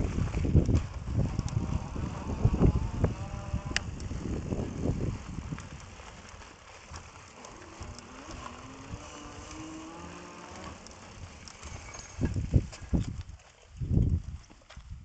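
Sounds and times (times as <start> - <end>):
bike tyres rolling on dirt: 0.0 - 15.0
faint electric motor whine: 7.1 - 12.4.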